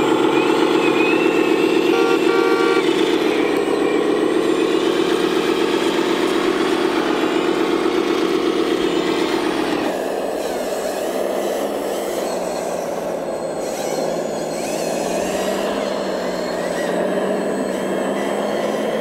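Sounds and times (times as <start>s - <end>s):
model dump truck running: 0.0s - 19.0s
model wheel loader working in sand: 0.0s - 19.0s.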